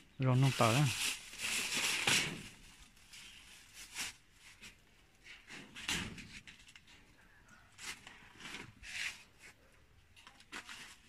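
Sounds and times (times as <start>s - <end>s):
plastic bags rustling: 0.1s - 7.1s, 10.2s - 11.0s.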